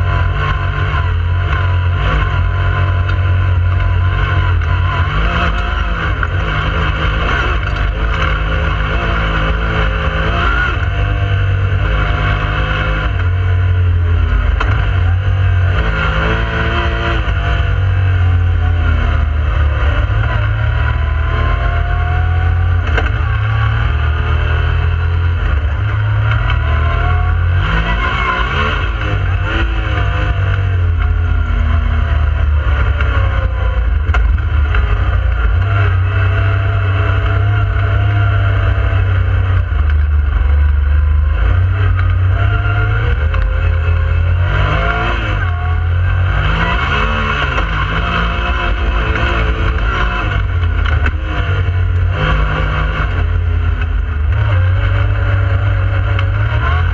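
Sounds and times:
vehicle engine accelerating: 0:00.0 - 0:56.9.

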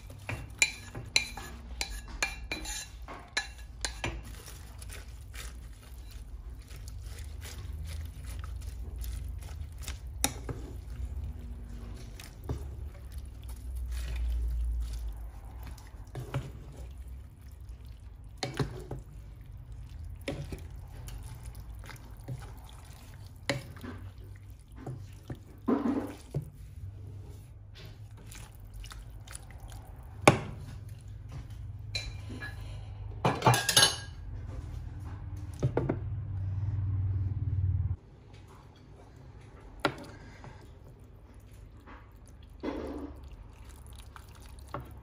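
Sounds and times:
liquid sloshing: 0:00.0 - 0:31.6, 0:39.4 - 0:45.0.

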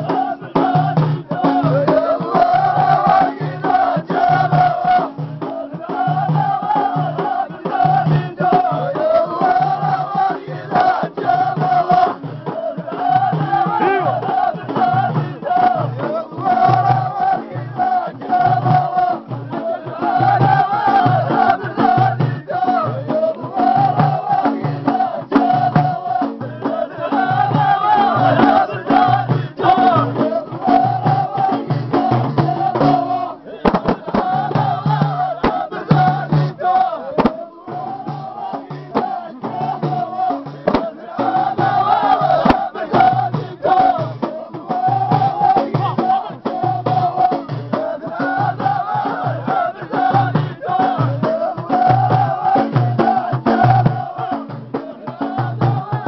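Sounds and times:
frame drum beat: 0:00.0 - 0:56.0
men singing a chant: 0:00.0 - 0:56.0
hand claps: 0:05.4 - 0:05.6.

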